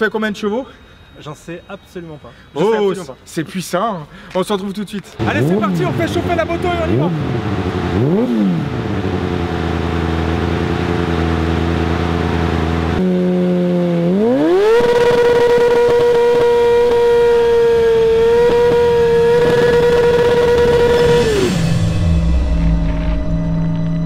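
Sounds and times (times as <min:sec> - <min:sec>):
motorcycle engine revving: 0:05.2 - 0:24.0.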